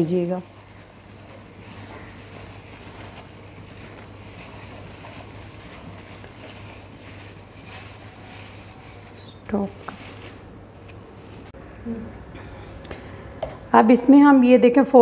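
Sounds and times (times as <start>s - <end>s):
hands squishing wet coating: 0.0s - 11.6s
plastic gloves rustling: 0.0s - 11.6s
steady low hum: 0.0s - 14.2s.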